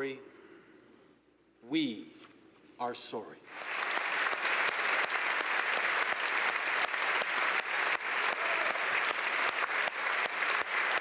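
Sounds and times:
crowd clapping: 3.5 - 11.0.

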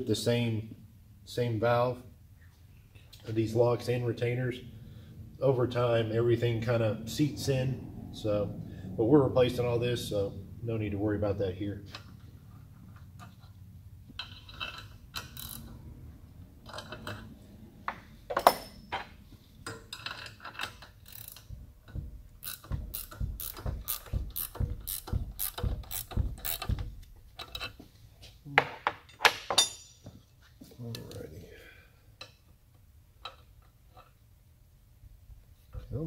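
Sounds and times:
ratcheting wrench clicking: 14.2 - 15.8, 19.7 - 27.7
sharp metal clicks and taps: 19.7 - 27.7.

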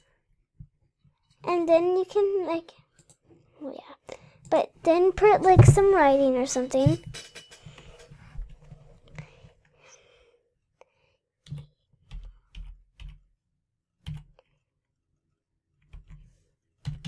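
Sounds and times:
typing on computer keyboard: 11.4 - 13.3, 14.0 - 14.4.

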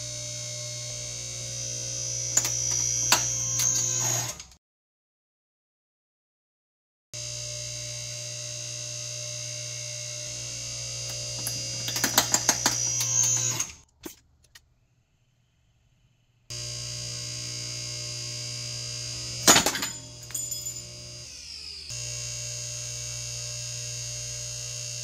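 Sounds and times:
hydraulic pump motor humming: 0.0 - 4.4, 7.2 - 14.2, 16.5 - 25.0.

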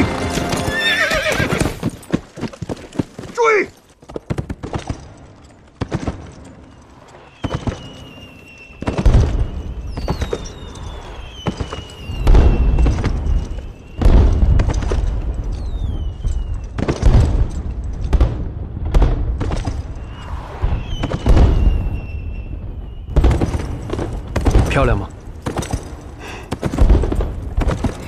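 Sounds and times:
rockets whistling: 6.6 - 16.8, 19.8 - 24.3.

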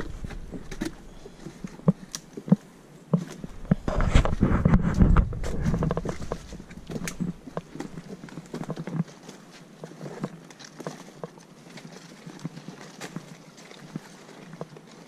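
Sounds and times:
footsteps on rough forest trail: 0.0 - 15.0.

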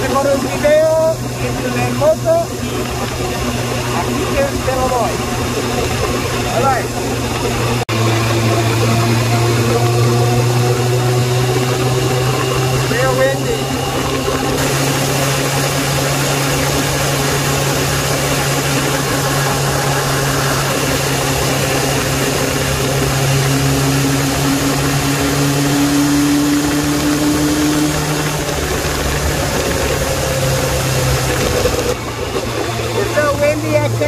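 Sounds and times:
motorcycle engine running: 0.0 - 34.0
rising tone: 0.0 - 34.0
wind rush on microphone: 0.0 - 34.0.

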